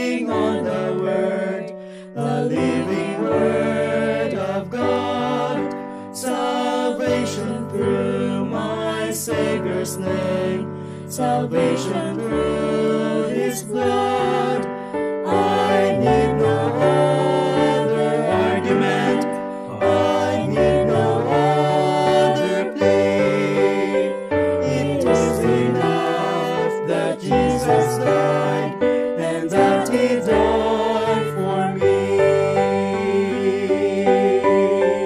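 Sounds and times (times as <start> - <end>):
vocal quartet singing a hymn: 0.0 - 35.0
singers breathing: 1.7 - 2.2, 5.7 - 6.2.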